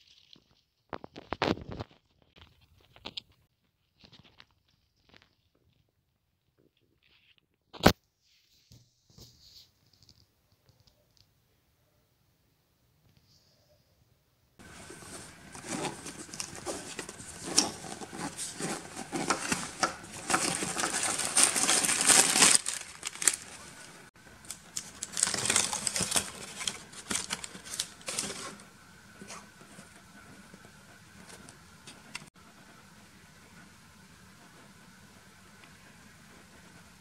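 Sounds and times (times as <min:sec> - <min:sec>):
hand rummaging in fabric bag: 0:14.6 - 0:24.1, 0:24.7 - 0:28.6.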